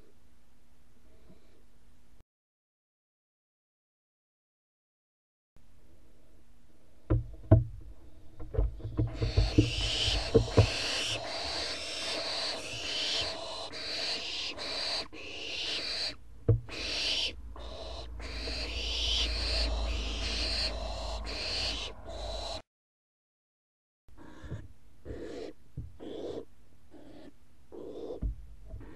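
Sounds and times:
knocks and scratches on wood: 0:07.1 - 0:11.0, 0:16.5 - 0:16.7, 0:28.2 - 0:28.9
owlets raspy begging calls: 0:09.1 - 0:22.6, 0:24.2 - 0:28.2.

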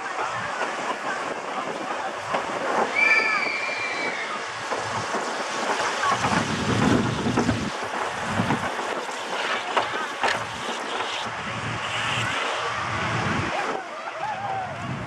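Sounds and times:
roller coaster train on track: 0:00.0 - 0:15.0
high squeal: 0:02.9 - 0:04.5.

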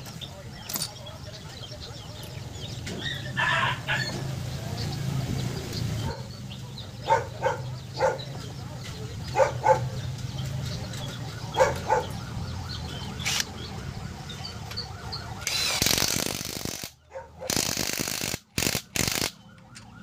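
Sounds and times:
dog barking: 0:06.0 - 0:06.4, 0:07.0 - 0:08.5, 0:09.3 - 0:10.0, 0:11.5 - 0:12.2, 0:17.1 - 0:17.6
impact wrench bursts: 0:13.2 - 0:13.5, 0:15.4 - 0:19.4.

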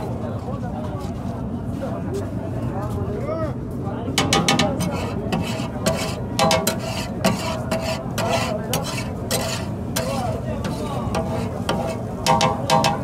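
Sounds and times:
metal spatula scraping griddle: 0:04.2 - 0:13.0.

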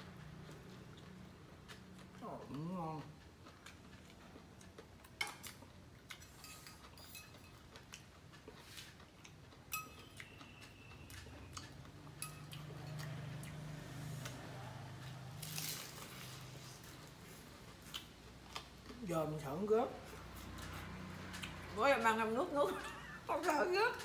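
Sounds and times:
utensils clinking on plates: 0:06.1 - 0:07.6, 0:09.7 - 0:10.4, 0:12.2 - 0:13.2
cracker crunch: 0:15.1 - 0:19.0.

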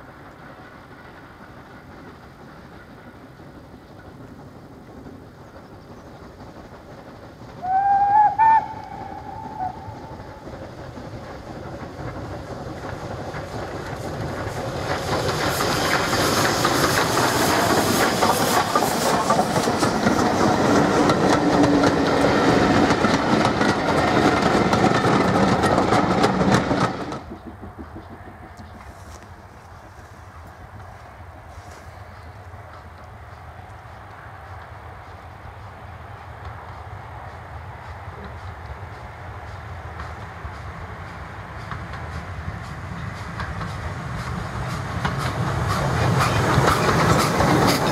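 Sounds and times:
steam locomotive working: 0:00.0 - 0:47.9
wheels clattering over rails: 0:03.4 - 0:30.1, 0:40.0 - 0:47.9
steam locomotive whistle: 0:07.6 - 0:10.5.

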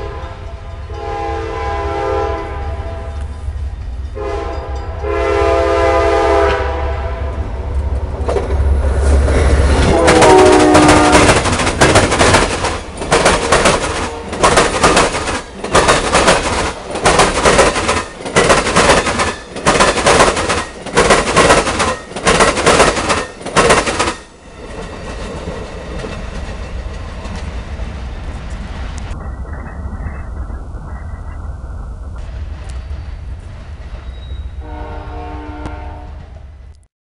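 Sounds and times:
low steady train rumble: 0:00.0 - 0:36.9
train wheels banging over crossing: 0:08.0 - 0:31.4.

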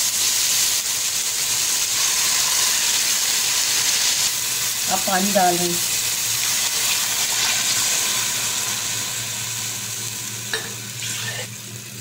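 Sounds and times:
water sizzling in hot oil: 0:00.0 - 0:12.0.

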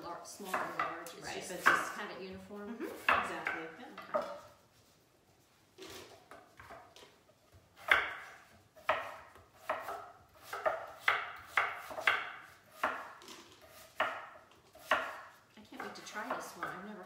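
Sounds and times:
knives chopping on wooden boards: 0:00.4 - 0:00.9, 0:01.6 - 0:02.0, 0:03.0 - 0:04.5, 0:07.8 - 0:16.9.

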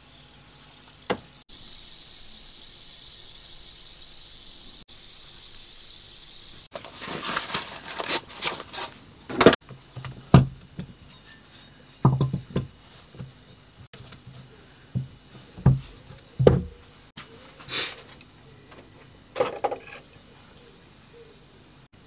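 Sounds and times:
knocks on wooden workbench: 0:10.3 - 0:10.6, 0:15.0 - 0:16.8.

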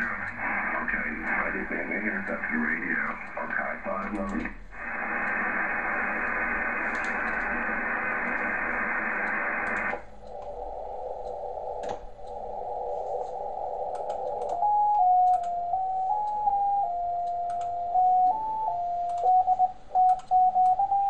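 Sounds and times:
radio band noise hiss: 0:00.0 - 0:14.8
radio tone shifting in pitch: 0:04.8 - 0:17.2.

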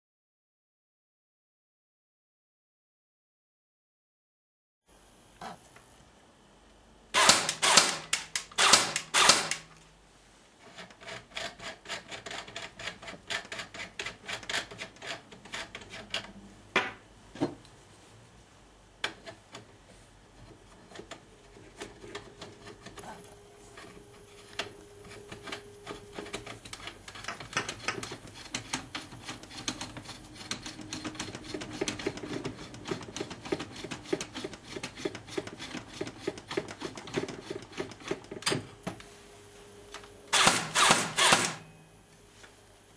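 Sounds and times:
rapid clicking bursts: 0:07.2 - 0:09.7.

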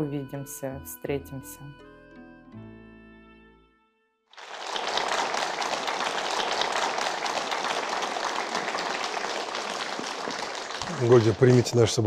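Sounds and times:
soft instrumental music: 0:00.0 - 0:04.2
audience applause: 0:04.4 - 0:12.0.

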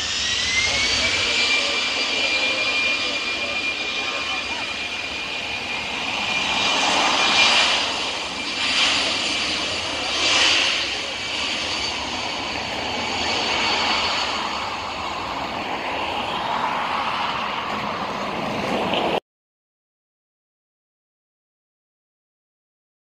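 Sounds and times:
jet engines roaring: 0:00.0 - 0:19.2.

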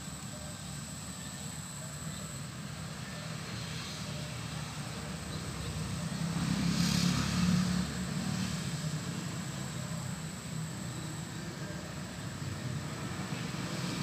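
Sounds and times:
steady background hum: 0:00.0 - 0:14.0
vehicle engine passing: 0:05.8 - 0:09.7.

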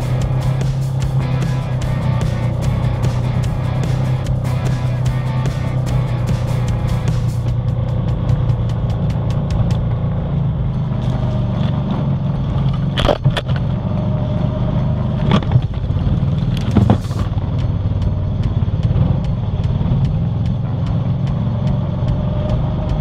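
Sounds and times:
atv engine running: 0:00.0 - 0:23.0.

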